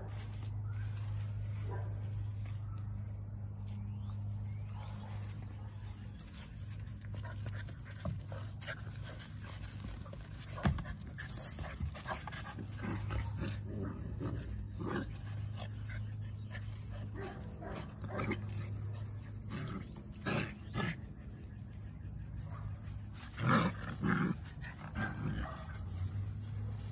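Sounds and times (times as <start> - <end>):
scuffling in grass: 0.0 - 26.9
steady low hum: 0.0 - 26.9.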